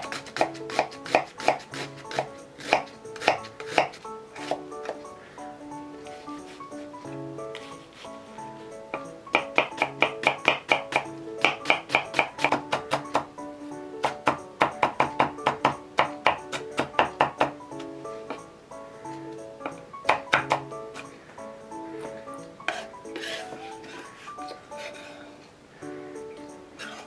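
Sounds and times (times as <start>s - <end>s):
knife chopping on wooden board: 0.0s - 5.0s, 8.9s - 13.3s, 14.0s - 17.6s, 19.6s - 21.1s, 22.7s - 24.0s
background music: 0.0s - 27.0s.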